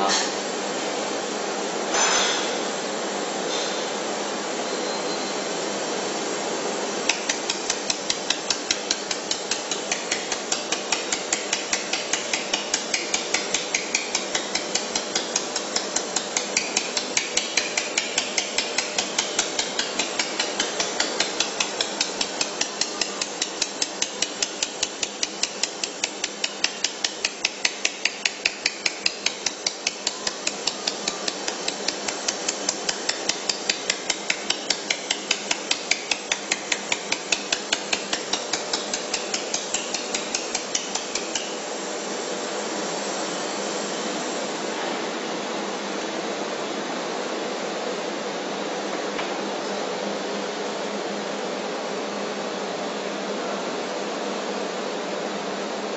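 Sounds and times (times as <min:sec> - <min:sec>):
steady machine hiss: 0:00.0 - 0:55.9
laser welder ticking: 0:07.0 - 0:41.7.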